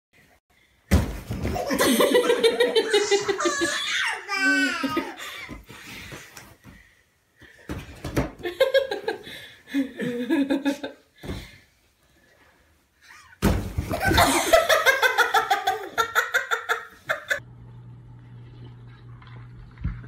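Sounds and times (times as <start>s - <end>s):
people laughing: 1.6s - 5.3s, 13.9s - 17.4s
baby laughing: 1.6s - 5.4s.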